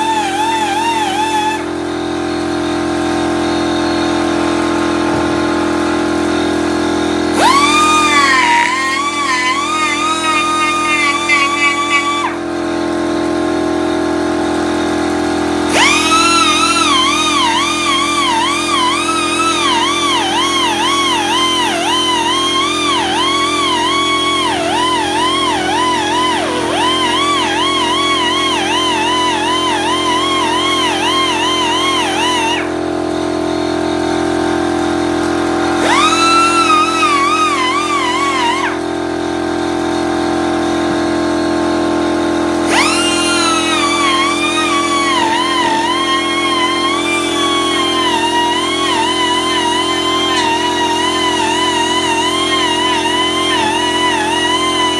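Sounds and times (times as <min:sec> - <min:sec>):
rotary tool whining cutting wood: 0:00.0 - 0:13.6, 0:14.8 - 0:33.7, 0:35.6 - 0:41.5, 0:42.5 - 0:54.9
high wavering melody: 0:07.4 - 0:12.4, 0:23.2 - 0:29.6
steady drone: 0:07.4 - 0:12.7.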